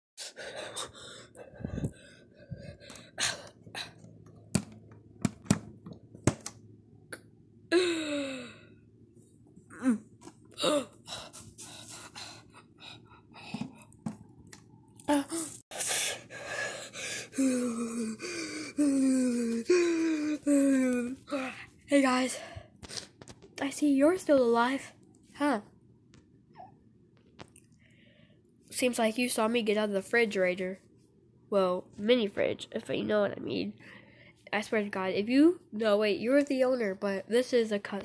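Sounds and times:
knocks and clicks: 0:04.5 - 0:06.6
person gasping and groaning: 0:07.7 - 0:08.7, 0:09.7 - 0:13.8, 0:15.1 - 0:21.7.

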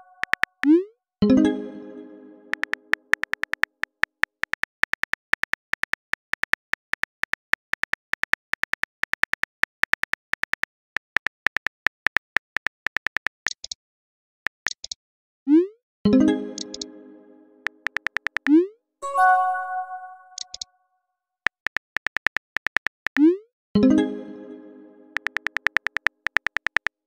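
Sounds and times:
phone keyboard clicks: 0:00.2 - 0:00.7, 0:02.5 - 0:13.8, 0:14.5 - 0:15.0, 0:16.6 - 0:16.9, 0:17.7 - 0:18.5, 0:20.4 - 0:20.7, 0:21.5 - 0:23.2, 0:25.2 - 0:27.0.

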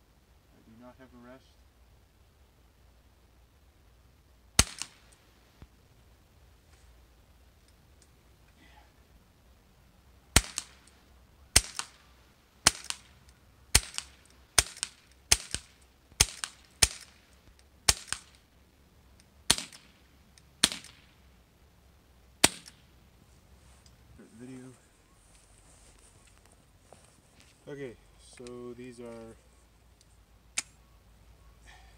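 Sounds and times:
air pistol shots cracking: 0:04.6 - 0:05.2, 0:10.3 - 0:10.9, 0:11.5 - 0:17.2, 0:17.8 - 0:18.4, 0:19.5 - 0:20.0, 0:20.6 - 0:21.2, 0:22.4 - 0:22.9.

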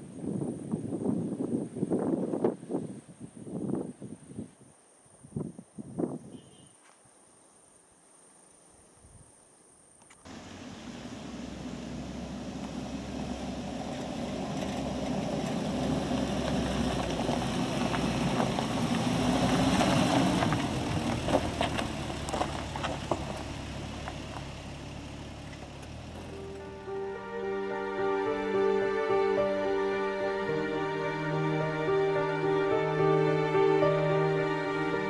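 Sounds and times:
stones crackling under tyres: 0:10.1 - 0:26.7
vehicle engine passing: 0:10.3 - 0:35.0.

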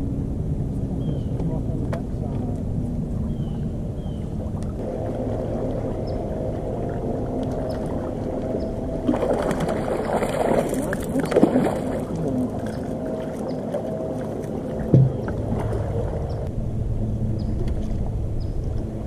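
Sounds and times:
electric trolling motor humming: 0:04.4 - 0:19.0
rushing splashing water: 0:04.7 - 0:16.5.

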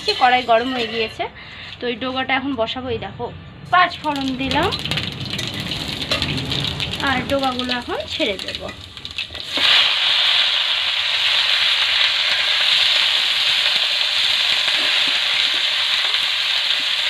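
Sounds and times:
greens sizzling in hot oil: 0:03.9 - 0:17.0.

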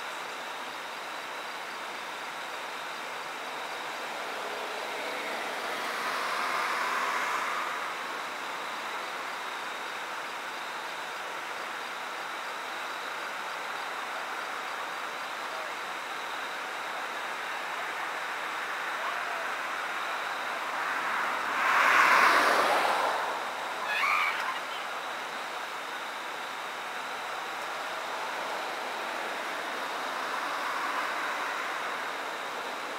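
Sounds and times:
steady background hiss: 0:00.0 - 0:32.9
vehicle passing: 0:04.2 - 0:08.2, 0:20.4 - 0:23.7.

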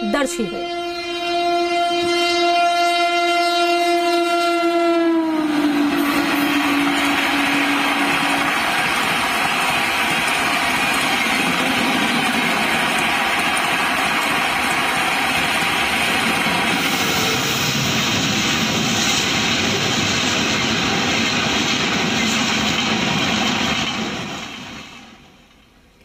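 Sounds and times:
train wheels rumbling on rails: 0:05.0 - 0:26.0.

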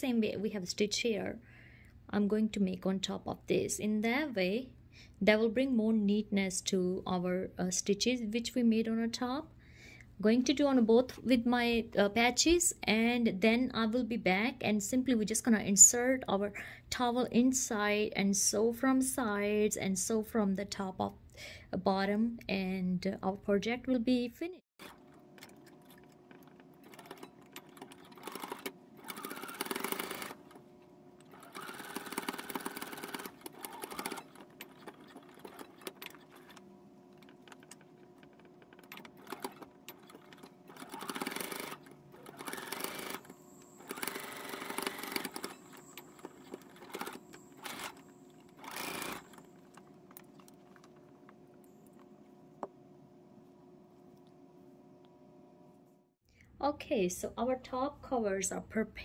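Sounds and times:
sewing machine stitching: 0:24.8 - 0:30.6, 0:31.2 - 0:50.8.

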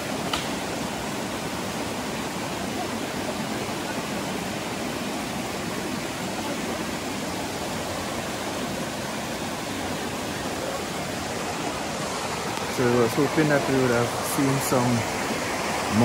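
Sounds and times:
river water rushing: 0:00.0 - 0:16.0.

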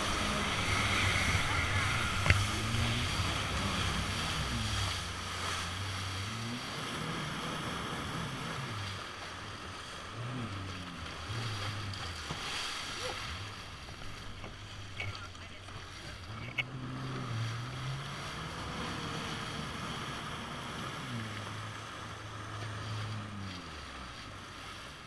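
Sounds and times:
water spray rushing: 0:00.0 - 0:24.8
jet ski engine revving: 0:00.0 - 0:25.0
wind: 0:00.0 - 0:25.0.

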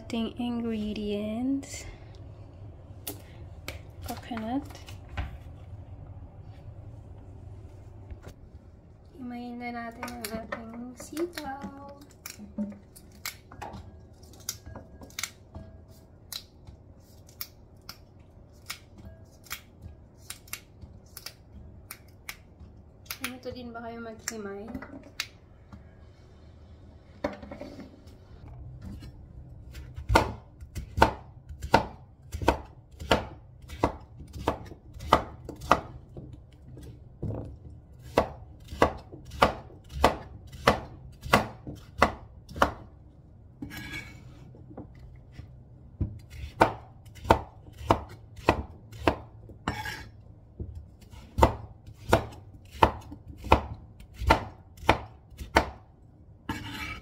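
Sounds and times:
knife chopping on cutting board: 0:29.7 - 0:36.3, 0:38.0 - 0:42.9, 0:46.0 - 0:55.8, 0:56.5 - 0:57.0.

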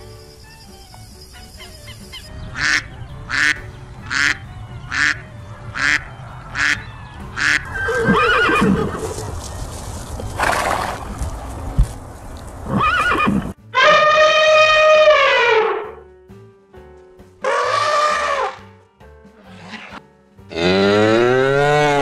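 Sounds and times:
low background music: 0:00.0 - 0:22.0
goose-like honks: 0:02.5 - 0:08.8, 0:17.4 - 0:18.6
elephant trumpeting: 0:02.6 - 0:09.3, 0:12.7 - 0:15.9, 0:17.4 - 0:18.6
horse whinnying: 0:07.7 - 0:09.2, 0:12.6 - 0:15.9, 0:17.4 - 0:18.6
horse snort: 0:10.4 - 0:11.0.

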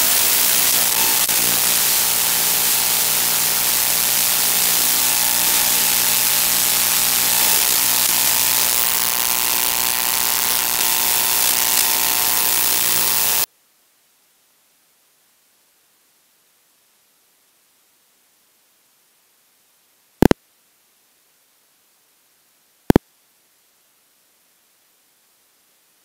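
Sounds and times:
loud steady hiss: 0:00.0 - 0:13.5.

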